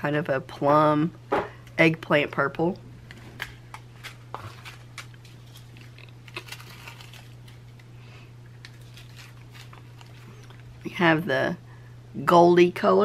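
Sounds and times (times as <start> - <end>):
plastic bags clicking and crinkling: 3.4 - 7.9, 8.6 - 10.9.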